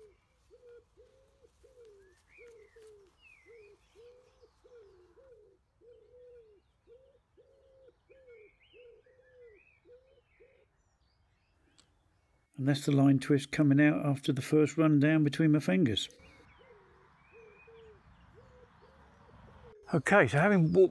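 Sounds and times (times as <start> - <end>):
pigeon cooing: 0.0 - 10.7, 16.1 - 19.9
small birds chirping: 0.0 - 13.2, 15.0 - 20.9.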